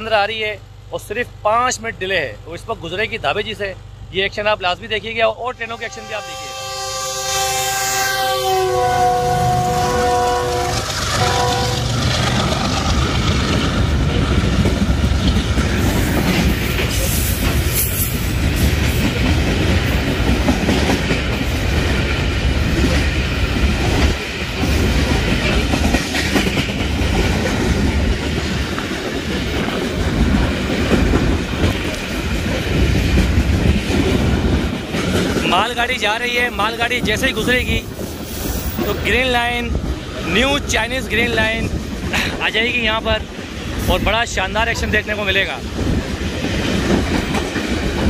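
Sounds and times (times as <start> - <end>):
freight train rumbling: 0.0 - 48.0
wheels clacking over rail joints: 10.1 - 37.5, 45.7 - 48.0.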